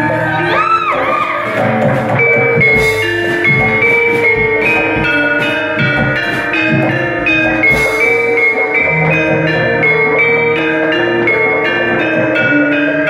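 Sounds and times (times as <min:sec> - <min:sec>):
metallophones struck notes: 0:00.0 - 0:13.0
low drum strokes: 0:01.6 - 0:10.6.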